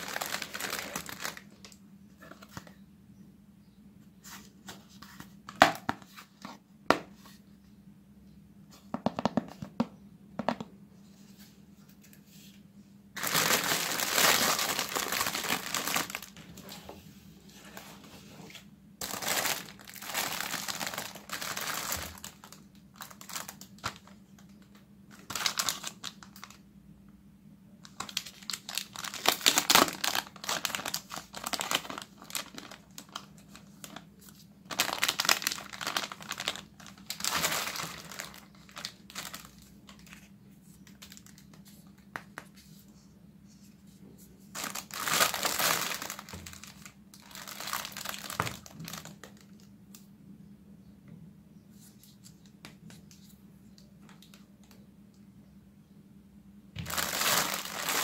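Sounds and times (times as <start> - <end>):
plastic wrapping crinkling: 0.0 - 2.4, 13.2 - 16.8, 19.0 - 26.6, 27.8 - 42.2, 44.5 - 49.7, 56.8 - 58.0.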